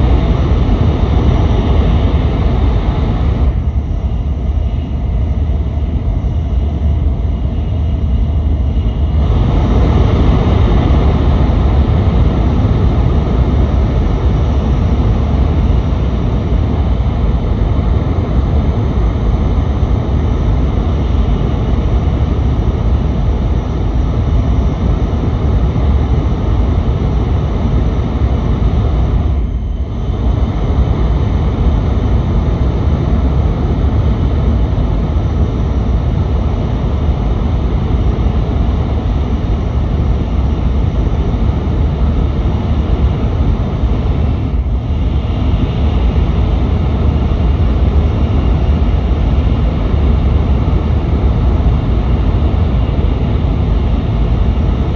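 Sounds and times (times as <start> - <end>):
train cabin rumble and hiss: 0.0 - 54.9.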